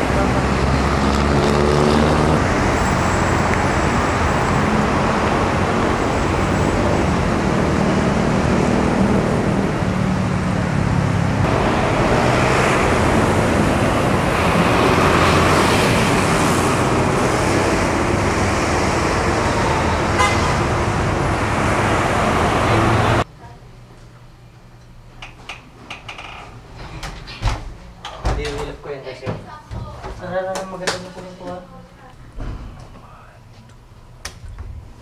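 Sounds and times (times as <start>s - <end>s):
road traffic: 0.0s - 23.4s.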